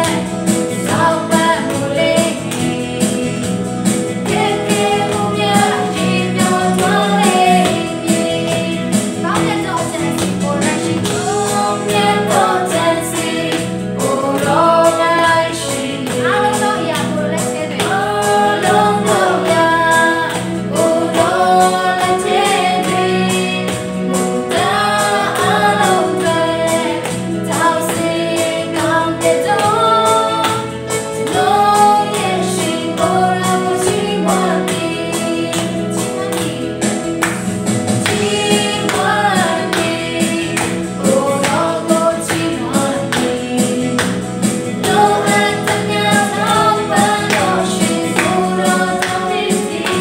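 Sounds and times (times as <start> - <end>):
woman singing lead: 0.0 - 37.4, 38.0 - 50.0
band accompaniment: 0.0 - 50.0
people singing along: 0.0 - 50.0.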